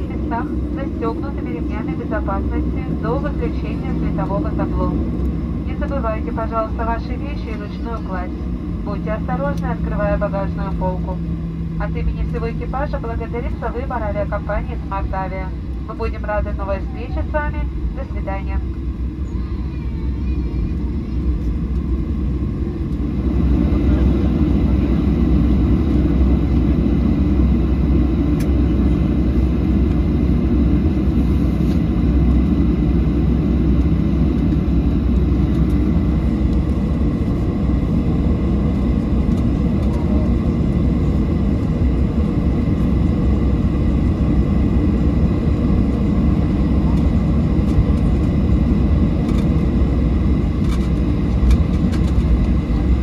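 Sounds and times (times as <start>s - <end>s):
jet engine rumble: 0.0s - 53.0s.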